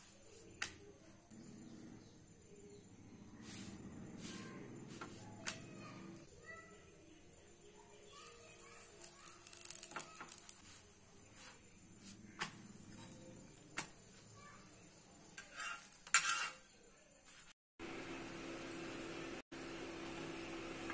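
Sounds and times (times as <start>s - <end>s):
spoon scraping on iron pan: 15.4s - 16.7s.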